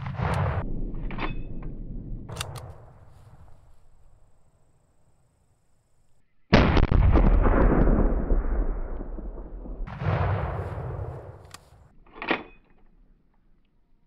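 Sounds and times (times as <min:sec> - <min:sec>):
explosion booms: 0:00.0 - 0:03.6, 0:06.5 - 0:11.4.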